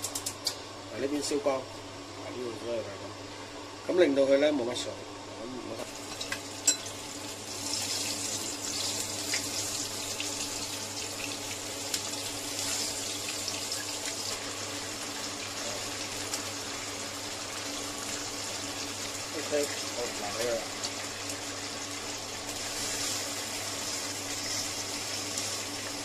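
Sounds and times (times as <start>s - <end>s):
oysters sizzling in oil: 5.8s - 26.0s.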